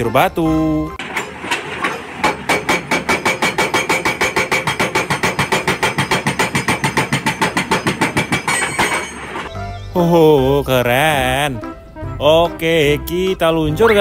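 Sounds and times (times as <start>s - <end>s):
hydraulic rock breaker hammering: 1.0s - 9.5s.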